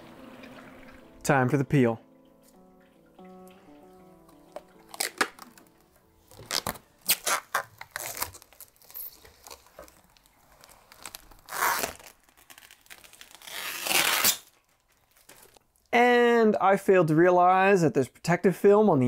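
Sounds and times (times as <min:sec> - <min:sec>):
plastic film peeling and crackling: 0:04.5 - 0:15.9.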